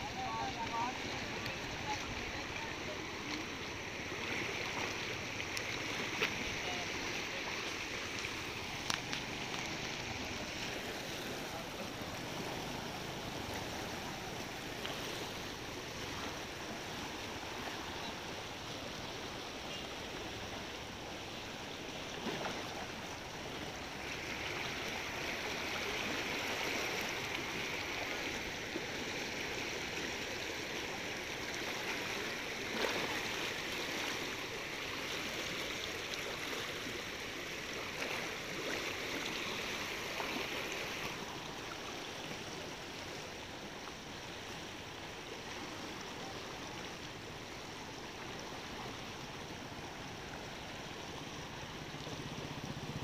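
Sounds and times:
flooded river rushing: 0.0s - 53.0s.

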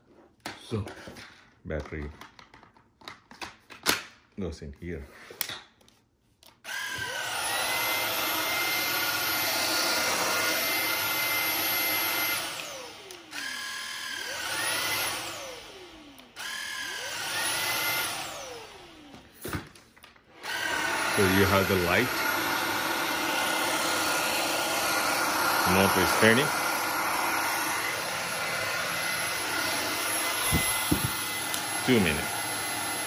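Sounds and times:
vacuum motor whining: 6.7s - 19.6s, 20.3s - 33.0s.

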